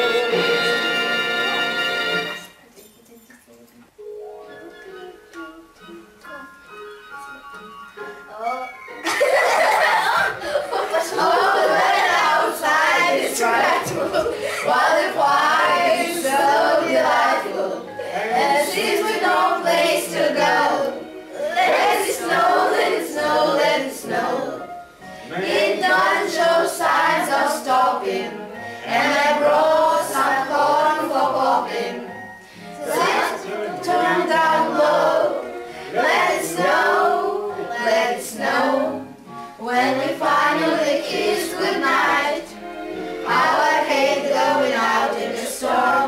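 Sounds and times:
choir singing: 0.0 - 2.6, 8.4 - 46.0
singers breathing: 32.3 - 32.8, 35.6 - 35.9.

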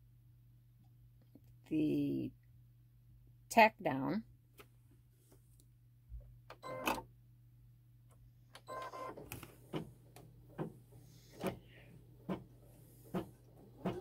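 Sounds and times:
steady low hum: 4.2 - 14.0.

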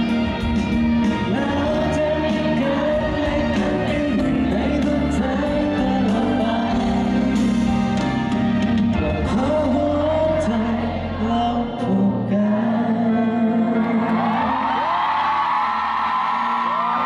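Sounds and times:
instrumental accompaniment: 0.0 - 11.1
man singing into a microphone: 1.1 - 7.6, 9.0 - 14.9.

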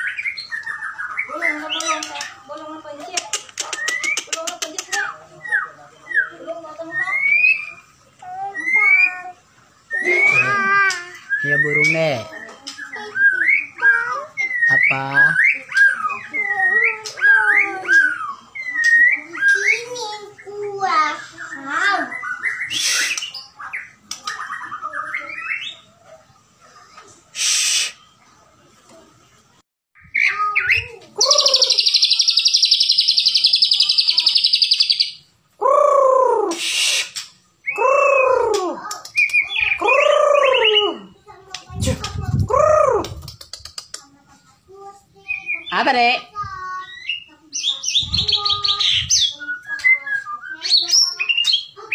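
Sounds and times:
bird singing trills and whistles: 0.0 - 2.5, 3.6 - 25.9, 30.0 - 41.2, 45.2 - 46.2, 46.8 - 51.9
bird singing whistled notes: 11.2 - 13.8, 30.0 - 35.2, 46.8 - 51.8.

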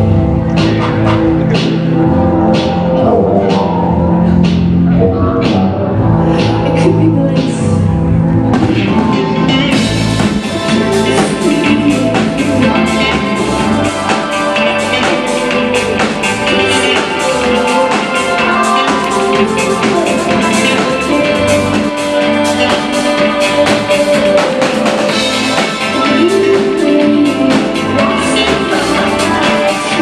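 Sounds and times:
bass guitar: 0.0 - 30.0
woman singing into a microphone: 6.3 - 7.9, 10.5 - 15.3, 16.5 - 24.6, 25.2 - 30.0
drums with cymbals: 8.6 - 30.0.

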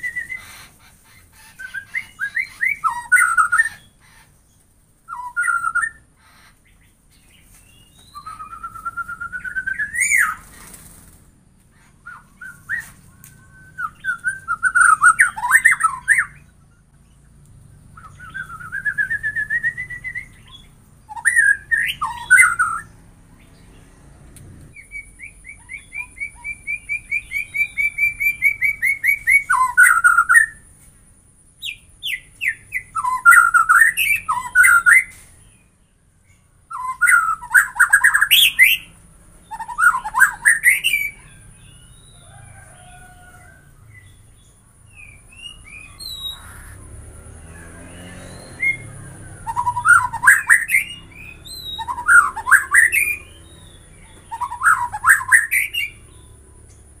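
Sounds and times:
bird singing varied phrases: 0.0 - 10.8, 11.8 - 23.9, 24.7 - 43.3, 43.9 - 57.0.

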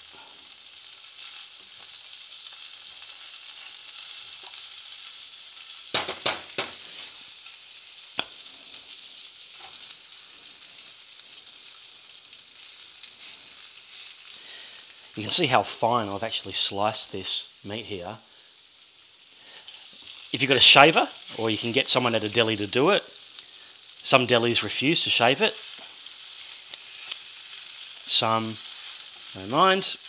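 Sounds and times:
meat sizzling in a pan: 0.0 - 30.0.

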